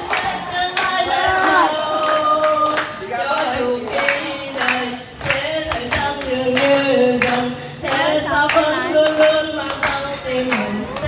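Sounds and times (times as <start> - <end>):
people clapping along: 0.0 - 11.0
woman singing through loudspeaker: 0.0 - 11.0.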